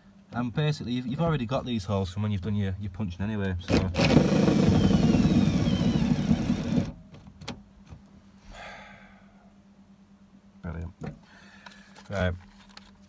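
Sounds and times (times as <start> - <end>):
drill click: 3.7 - 6.9
drill driving screw into metal: 3.7 - 6.9.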